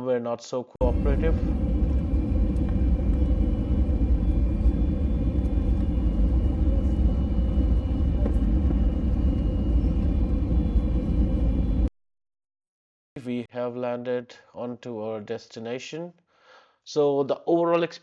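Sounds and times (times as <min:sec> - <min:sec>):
airplane cabin rumble: 0:00.8 - 0:11.9
faint steady whine: 0:00.8 - 0:11.9.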